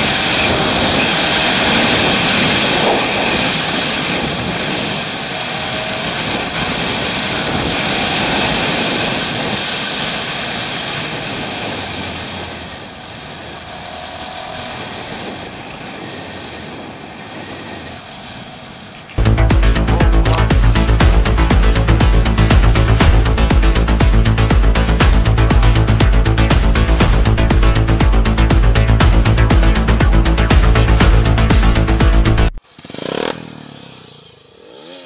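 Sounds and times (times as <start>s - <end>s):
wind rushing over camera: 0.0s - 19.5s
motorcycle engine running: 0.0s - 35.0s.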